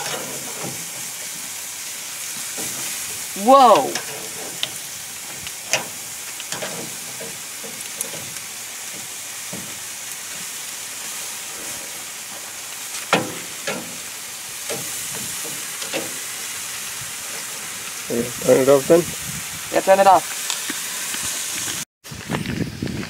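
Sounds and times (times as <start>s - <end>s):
metal tongs clacking: 0.0s - 0.9s, 3.7s - 4.8s, 5.6s - 8.4s, 13.1s - 14.0s, 14.7s - 16.3s
meat sizzling on a grill: 0.0s - 23.0s.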